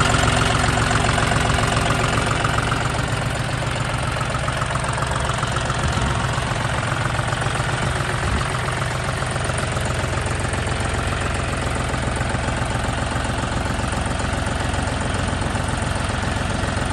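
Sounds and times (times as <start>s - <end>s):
tractor diesel engine idling: 0.0s - 16.9s.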